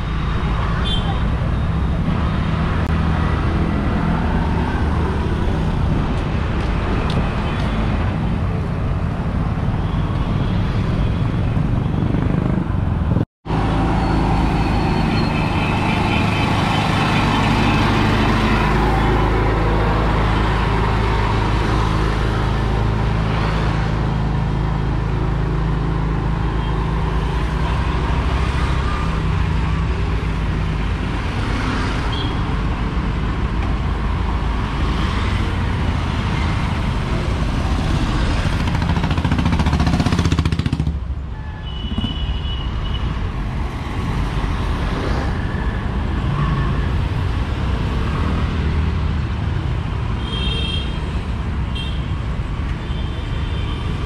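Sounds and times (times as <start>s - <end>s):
scooters and vehicles passing: 0.0s - 54.0s.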